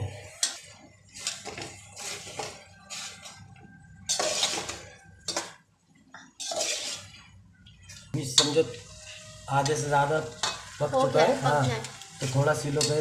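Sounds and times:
metal spoon scraping a pot: 0.2s - 5.6s, 6.3s - 7.3s.

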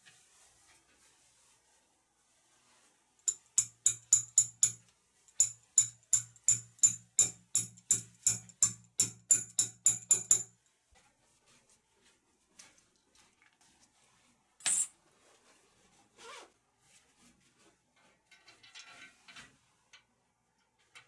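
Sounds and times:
wrench tapping metal: 3.3s - 4.8s, 5.4s - 10.5s.

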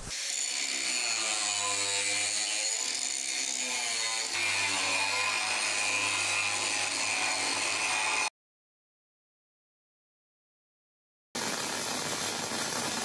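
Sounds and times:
angle grinder grinding metal: 0.0s - 8.3s.

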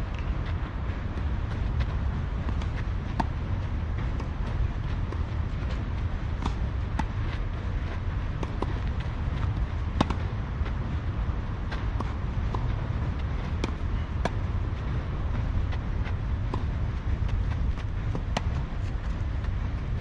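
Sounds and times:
low rumble: 0.0s - 20.0s
tennis racket hitting ball: 9.5s - 10.3s.

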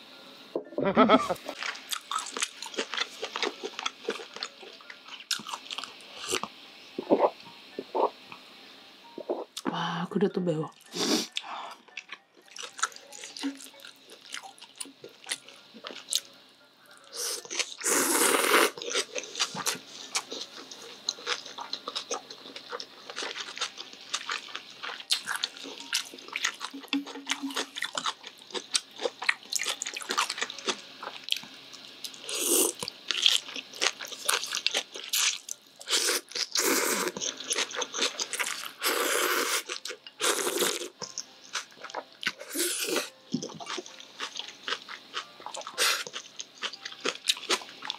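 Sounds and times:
slurping noodles: 17.8s - 18.8s.

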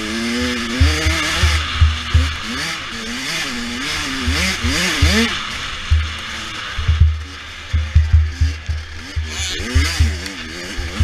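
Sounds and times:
dirt bike engine revving: 0.0s - 11.0s
heavy low thuds: 0.8s - 2.6s, 5.9s - 10.3s.

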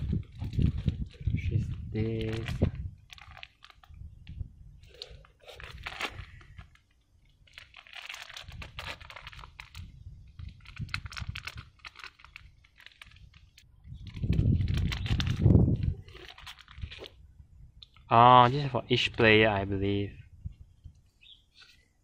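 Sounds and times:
plastic shrink-wrap crinkling: 0.0s - 17.2s.

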